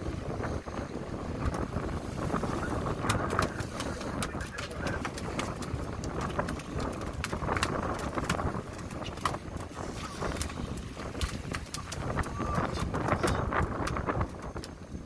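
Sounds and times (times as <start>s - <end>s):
wind and water washing along hull: 0.0s - 15.0s
gear clicking and knocking on deck: 3.0s - 9.7s, 10.3s - 14.8s.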